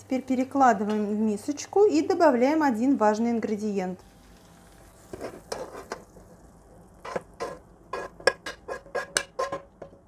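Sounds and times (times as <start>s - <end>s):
metal spoon scraping frying pan: 5.0s - 6.1s, 7.0s - 9.7s.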